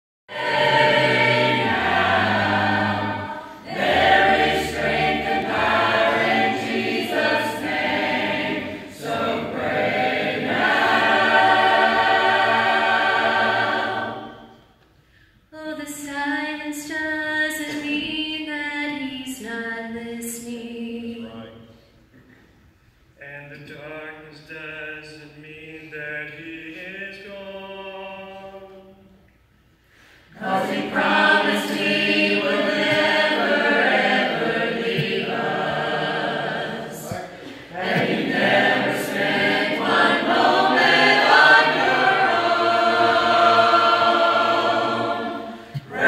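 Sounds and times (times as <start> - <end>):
church choir singing: 0.3 - 14.8, 23.2 - 29.2, 29.9 - 46.0.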